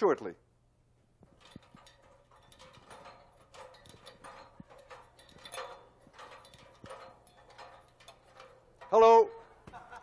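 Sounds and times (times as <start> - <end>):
footsteps climbing a ladder: 1.2 - 10.0.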